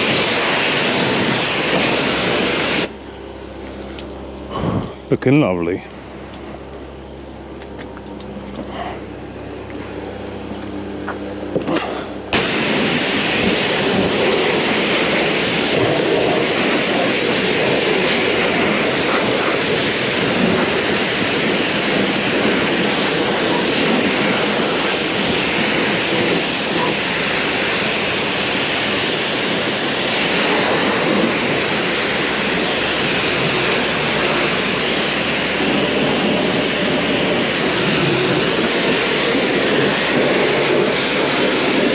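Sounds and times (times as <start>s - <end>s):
pressure washer spraying hiss: 0.0s - 2.9s, 12.4s - 41.9s
low steady hum: 1.0s - 30.1s.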